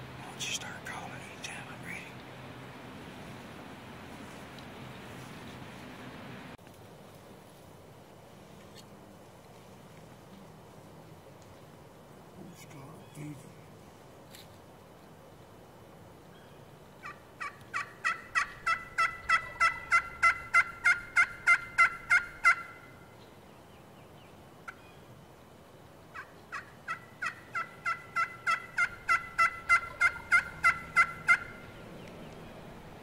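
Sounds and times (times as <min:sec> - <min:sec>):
turkey call hen yelps: 0:17.0 - 0:23.0, 0:26.1 - 0:31.6.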